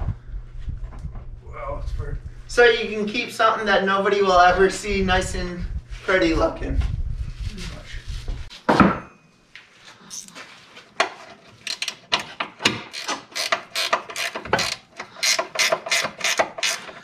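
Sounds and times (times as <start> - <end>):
ratchet wrench clicking: 12.9 - 17.0.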